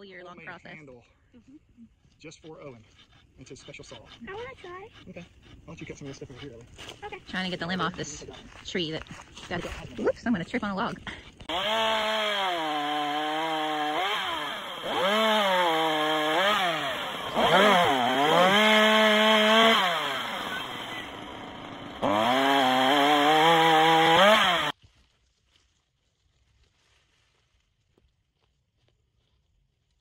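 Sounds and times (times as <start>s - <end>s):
chainsaw cutting wood: 11.3s - 24.8s.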